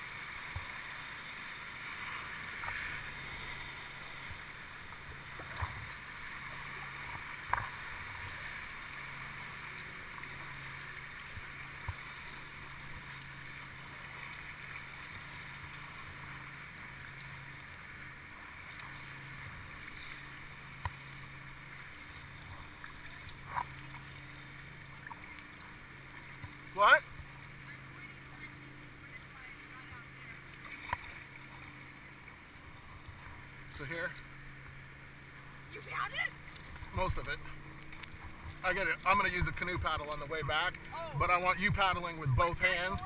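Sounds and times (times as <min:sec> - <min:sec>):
water washing around boat: 0:00.0 - 0:43.0.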